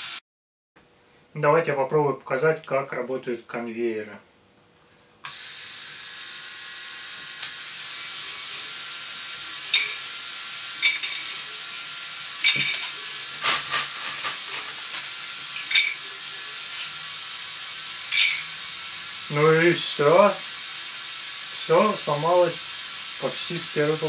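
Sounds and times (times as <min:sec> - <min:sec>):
toy motors and gears whirring: 0:05.2 - 0:24.0.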